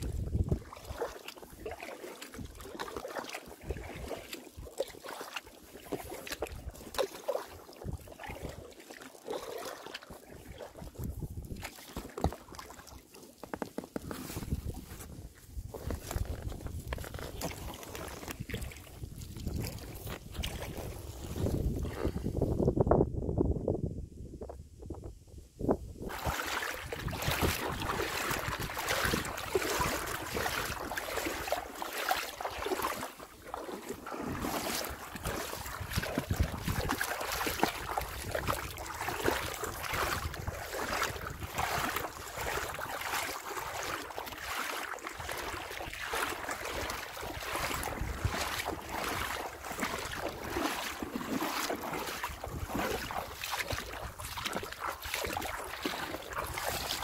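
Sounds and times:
wind noise on microphone: 0.0s - 1.0s, 7.8s - 8.6s, 10.3s - 12.4s, 14.0s - 31.7s, 34.2s - 44.2s, 45.2s - 57.0s
kayak paddle splashing water: 0.0s - 22.2s, 26.0s - 57.0s.

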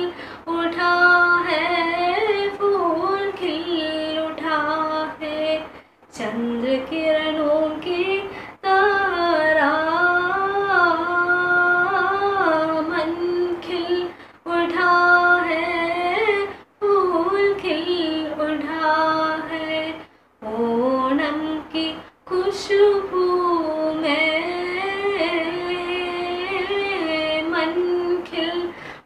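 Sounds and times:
girl singing unaccompanied: 0.0s - 29.0s
girl breathing: 0.1s - 0.5s, 5.7s - 6.1s, 8.3s - 8.6s, 14.1s - 14.4s, 28.7s - 29.0s.

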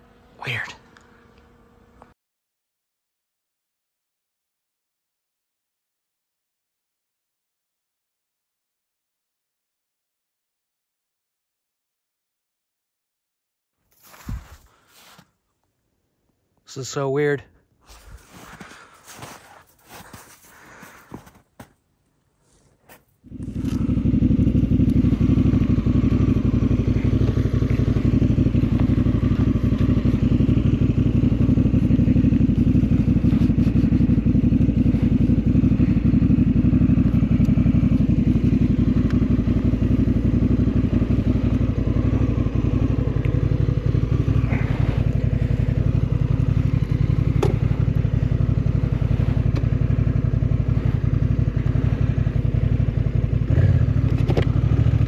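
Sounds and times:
motorcycle engine idling: 23.2s - 55.0s.

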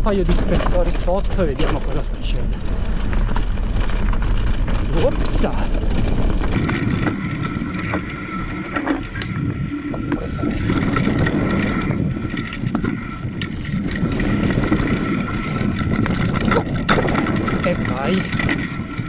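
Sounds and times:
bike rattling clicks and knocks: 0.0s - 19.0s
wind buffeting microphone: 0.0s - 19.0s.

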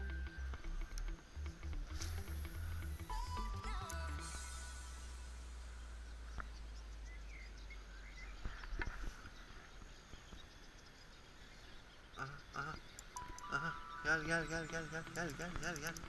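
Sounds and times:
faint bird chirps: 0.0s - 16.0s
soft clicks: 12.9s - 13.7s, 15.0s - 16.0s.

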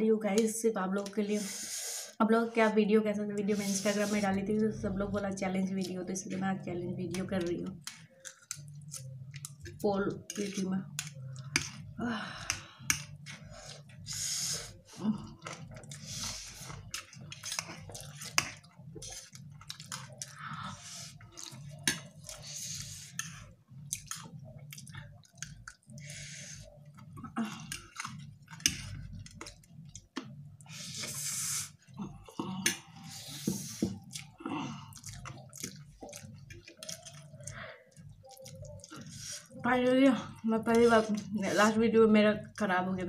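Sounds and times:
chewing and slurping: 7.7s - 12.0s, 12.8s - 39.6s
hissing breaths through mouth: 30.7s - 31.8s.

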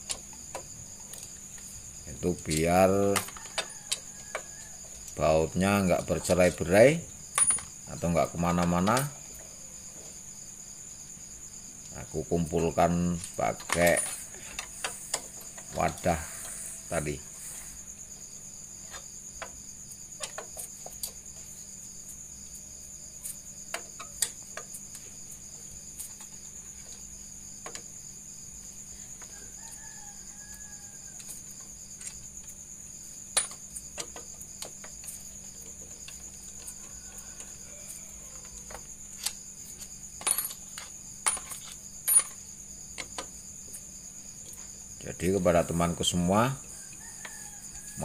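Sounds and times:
high insect trill: 0.0s - 48.0s
faint rooster crowing: 2.8s - 6.0s, 29.0s - 31.7s, 36.2s - 39.1s, 45.3s - 48.0s.

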